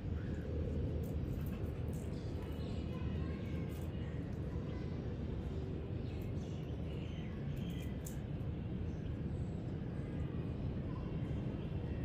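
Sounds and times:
low outdoor rumble: 0.0s - 12.0s
rabbits chewing leaves: 0.1s - 8.5s
faint bird chirps: 2.0s - 12.0s.

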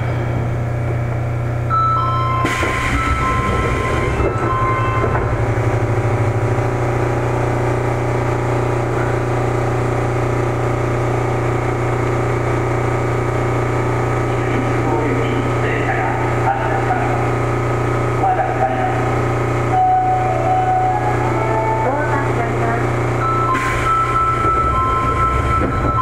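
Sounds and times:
train rumble: 0.0s - 11.9s, 14.0s - 26.0s
train inverter braking tones: 1.6s - 9.6s, 18.1s - 26.0s.

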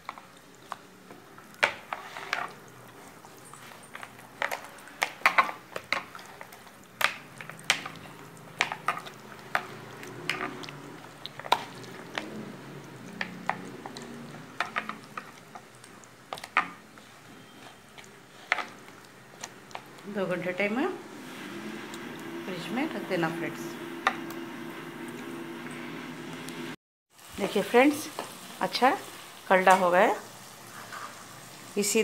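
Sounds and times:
wet paste sounds: 0.0s - 24.0s.

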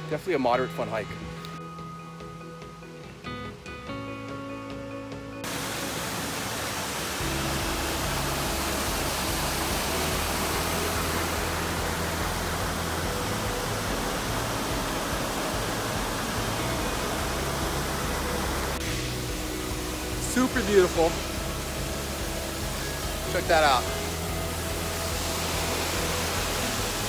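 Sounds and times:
background music: 0.0s - 27.0s
creek rushing over rocks: 5.4s - 27.0s.

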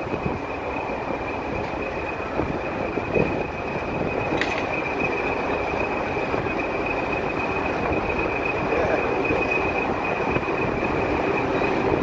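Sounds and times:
diesel locomotive engine rumble: 0.0s - 12.0s
high steady whine: 0.0s - 12.0s.

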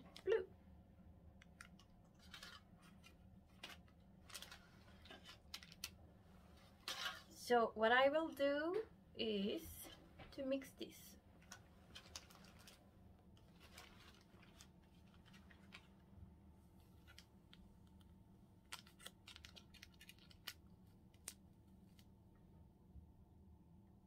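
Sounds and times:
faint low hum: 0.0s - 24.0s
paper packet rustles: 1.6s - 7.3s, 11.4s - 16.0s, 18.6s - 22.0s.

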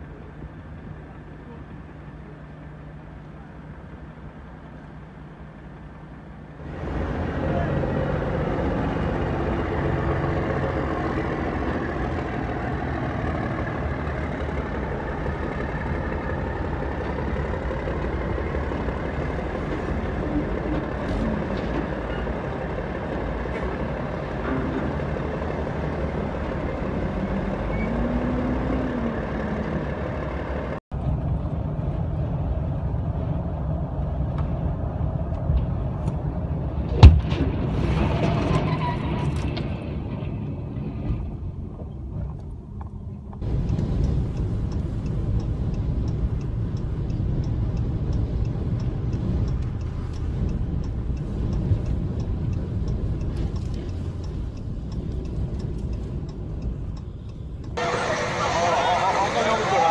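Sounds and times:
diesel truck engines running: 0.0s - 59.9s
loud sharp bang: 36.9s - 39.2s.

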